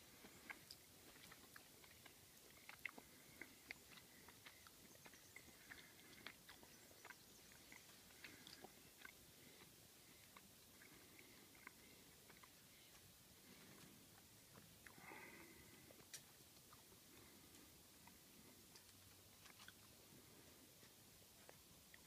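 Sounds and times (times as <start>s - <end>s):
animal chewing food clicks: 0.2s - 13.0s, 15.9s - 19.9s.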